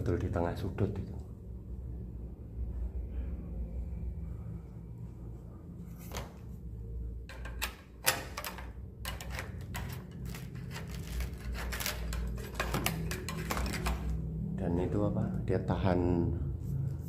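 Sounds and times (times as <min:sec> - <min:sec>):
scraper clicking and scratching wood: 0:07.3 - 0:14.2.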